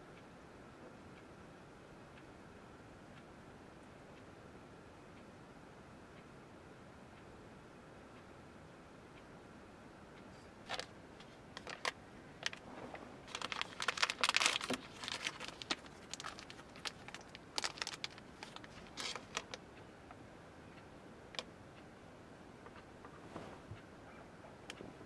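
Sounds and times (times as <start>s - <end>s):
plastic wrapper crinkling: 10.7s - 19.6s.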